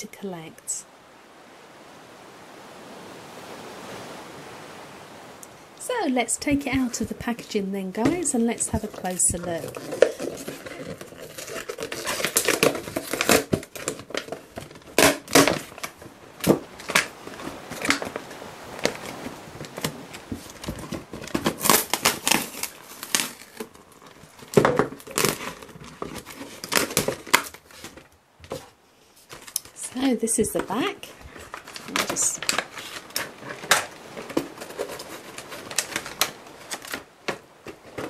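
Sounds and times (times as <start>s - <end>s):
plastic packaging crinkling: 8.6s - 18.1s, 19.7s - 28.1s, 31.3s - 38.0s.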